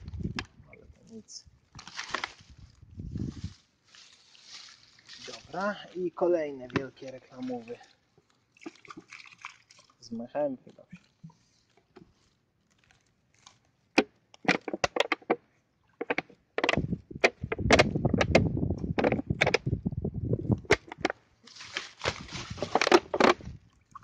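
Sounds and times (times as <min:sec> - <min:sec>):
dry reeds and litter rustling: 0:00.0 - 0:08.8, 0:10.9 - 0:13.8, 0:21.4 - 0:23.2
twigs snapping: 0:01.7 - 0:02.8, 0:11.7 - 0:15.3, 0:20.6 - 0:23.5.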